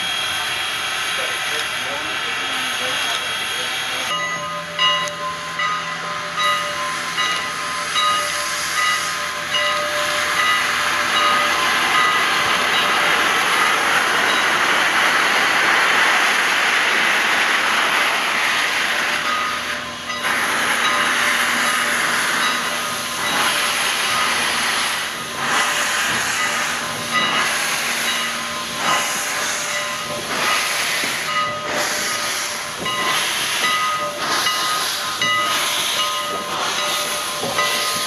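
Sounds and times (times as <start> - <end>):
steam locomotive venting steam: 0.0 - 38.0.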